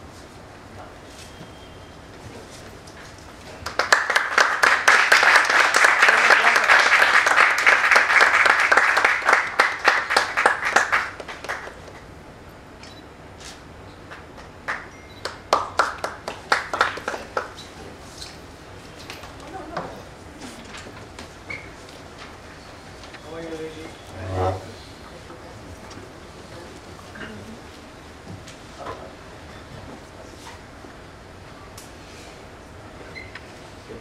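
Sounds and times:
audience applauding: 3.6s - 11.9s, 14.7s - 17.6s.

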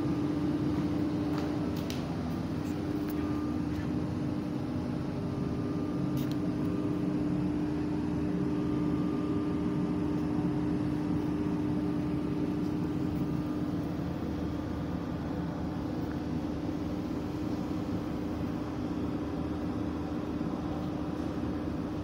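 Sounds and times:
machine hum: 0.0s - 22.0s.

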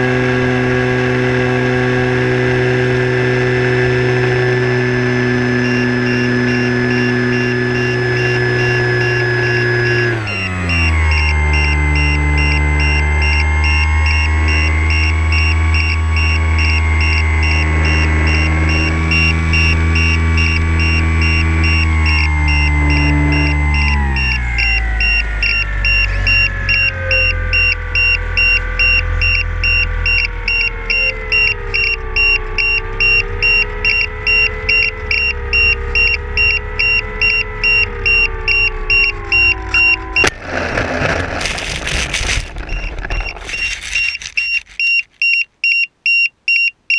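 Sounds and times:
model airplane motor and propeller drone: 0.0s - 45.2s.

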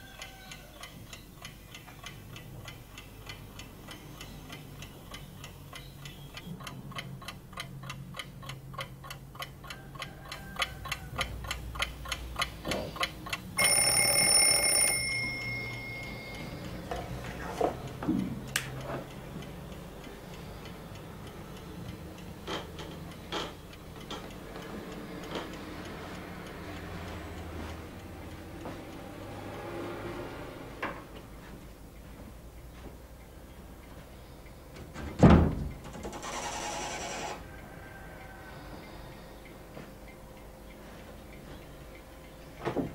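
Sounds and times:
alarm clock ticking fast: 0.0s - 30.3s
alarm clock bell ringing: 13.6s - 17.3s.

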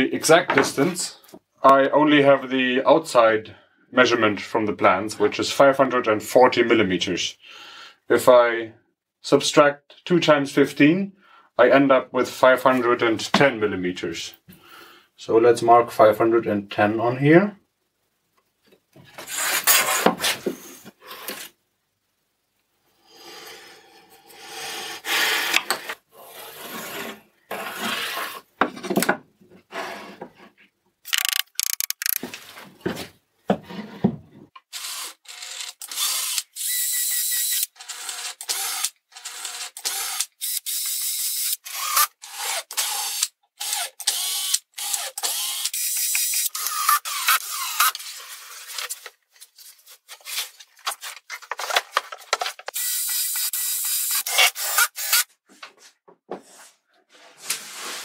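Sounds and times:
cordless drill drilling into wood: 34.7s - 48.4s, 52.7s - 55.3s.

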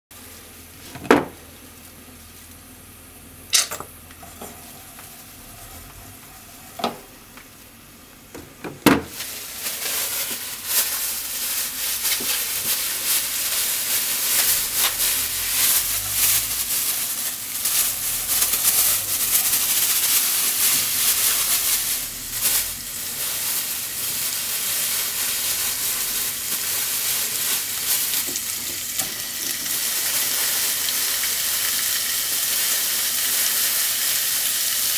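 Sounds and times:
oil sizzling in a pot: 9.1s - 34.9s.

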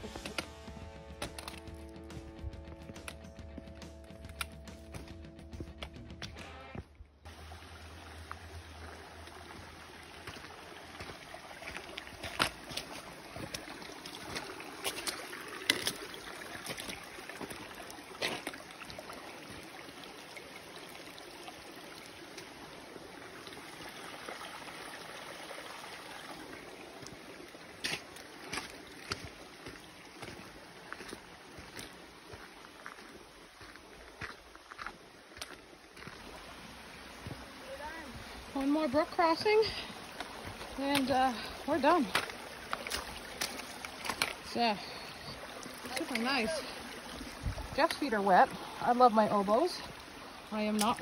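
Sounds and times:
footsteps on rocky trail: 0.0s - 6.9s, 9.4s - 18.9s, 27.8s - 48.8s.

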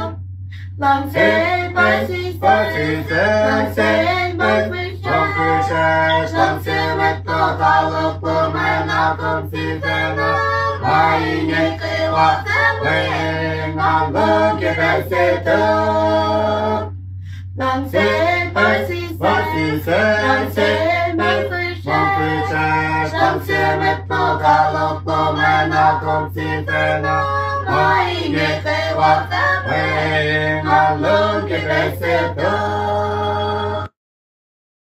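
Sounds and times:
women and children singing: 0.0s - 16.9s, 17.6s - 33.9s
steady low hum: 0.0s - 33.9s.

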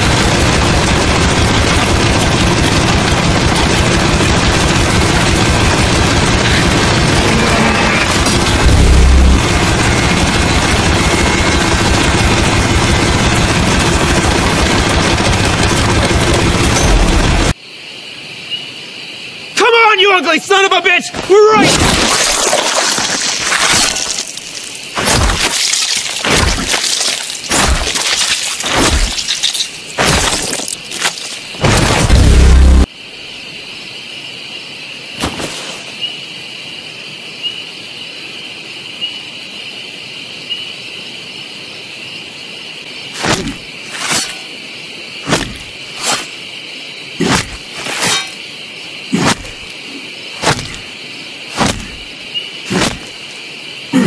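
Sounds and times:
crickets chirping: 12.9s - 54.0s
heavy cracking blows with thud: 21.7s - 32.9s, 50.4s - 50.9s, 51.6s - 52.1s, 52.7s - 53.2s.

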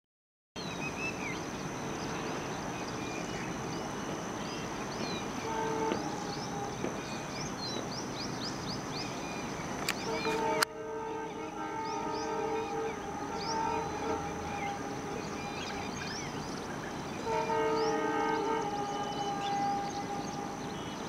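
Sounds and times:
birds chirping: 0.6s - 21.0s
distant train horn: 3.3s - 7.8s, 9.9s - 21.0s.

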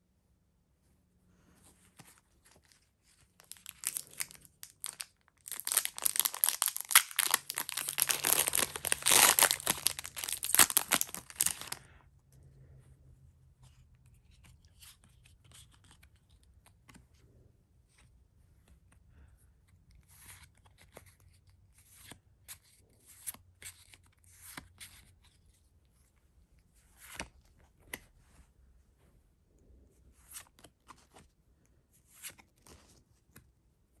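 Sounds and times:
cards being handled: 1.8s - 11.8s, 13.6s - 17.1s, 32.0s - 33.5s
foil wrapper crinkling and tearing: 3.4s - 11.8s.

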